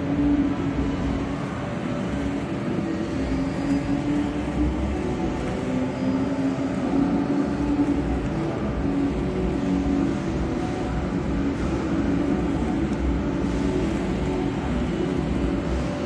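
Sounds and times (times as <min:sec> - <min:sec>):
mechanical hum and rumble: 0:00.0 - 0:16.0.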